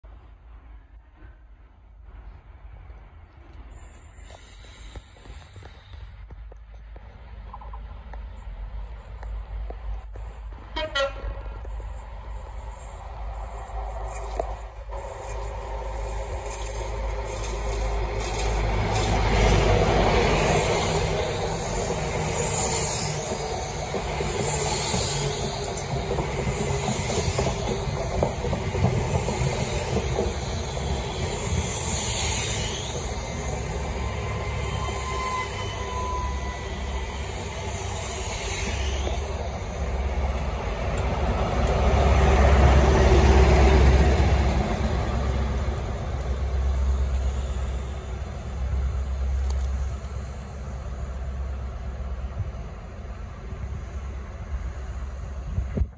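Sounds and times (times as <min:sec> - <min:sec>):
train wheels clicking over rail joints: 0:02.9 - 0:46.4
high wheel squeals: 0:29.2 - 0:39.9.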